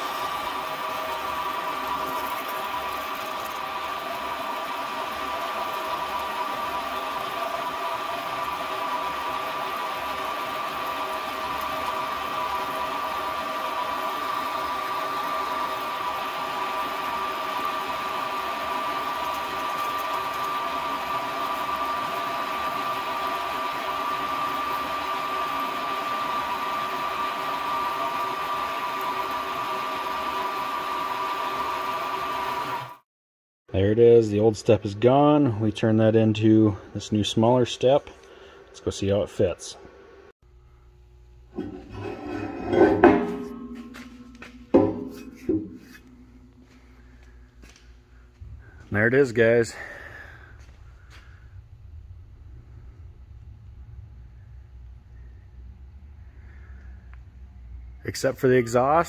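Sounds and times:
metal lathe whining: 0:00.0 - 0:33.0, 0:41.6 - 0:47.3.

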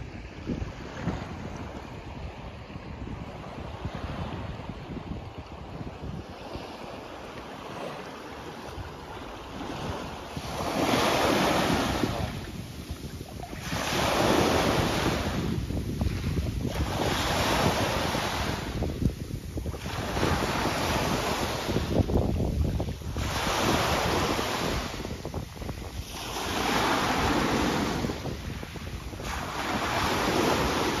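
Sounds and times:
wind rumble on microphone: 0:00.0 - 0:31.0
waves breaking on pebble beach: 0:07.7 - 0:31.0.

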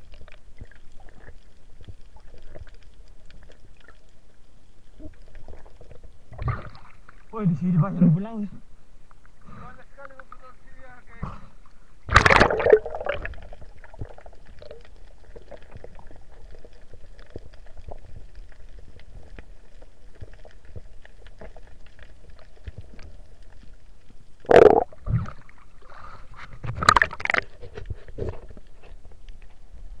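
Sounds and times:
faint ticks: 0:09.0 - 0:09.4.

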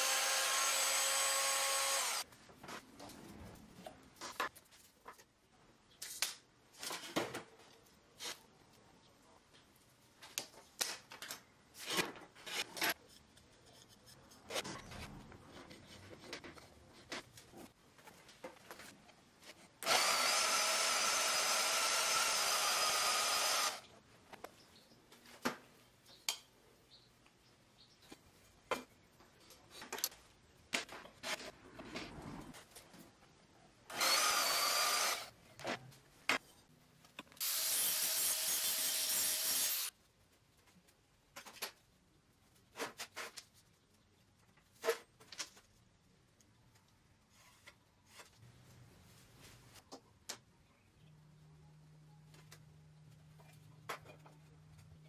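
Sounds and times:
bandsaw cutting steel tubing: 0:00.0 - 0:02.2, 0:19.8 - 0:23.8, 0:33.9 - 0:35.3, 0:37.4 - 0:39.9.

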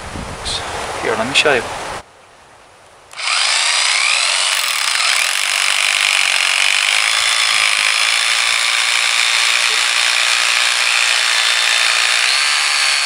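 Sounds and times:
rotary hammer drilling into concrete: 0:03.1 - 0:13.0.

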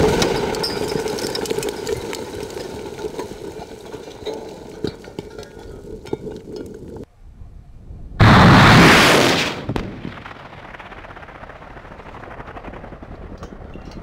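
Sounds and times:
debris clicking: 0:00.0 - 0:07.1
very loud blast: 0:08.2 - 0:11.3
large explosion: 0:08.2 - 0:13.7.

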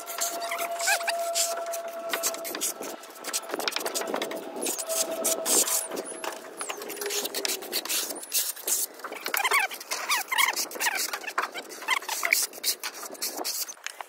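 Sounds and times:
trowel scraping on wall: 0:00.0 - 0:13.7.

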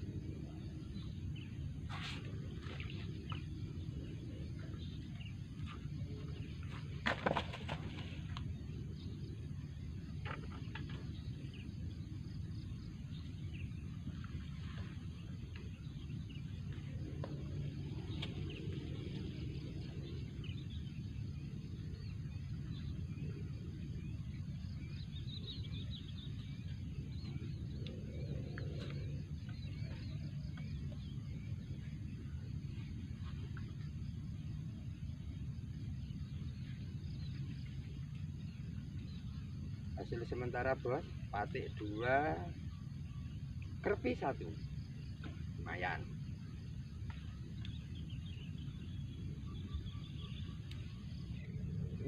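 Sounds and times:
low outdoor rumble: 0:00.0 - 0:52.0
bird chirps: 0:15.6 - 0:52.0.

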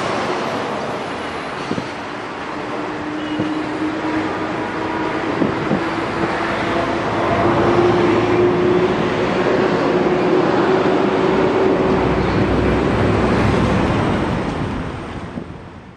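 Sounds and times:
engine hum: 0:00.0 - 0:15.9.

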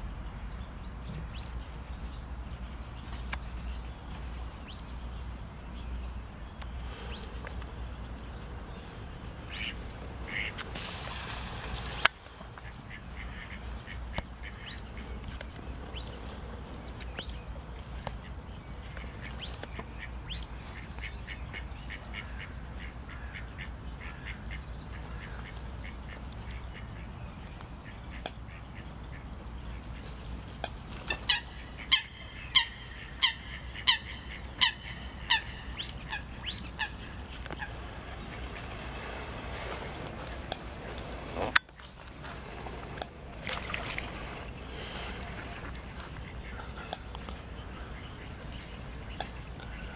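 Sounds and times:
ducks calling: 0:06.8 - 0:17.4, 0:31.0 - 0:49.9.

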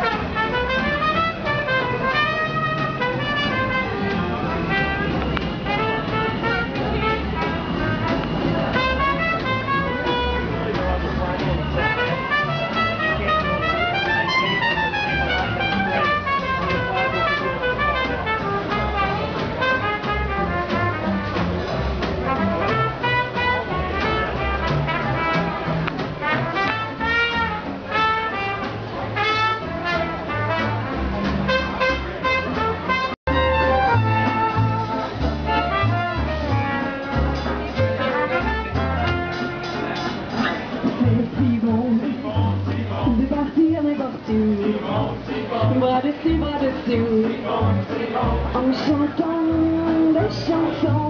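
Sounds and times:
trumpet melody: 0:00.0 - 0:40.3
plucked upright bass: 0:00.0 - 0:51.0
strummed guitar: 0:00.0 - 0:51.0
swing jazz band playing: 0:00.0 - 0:51.0.

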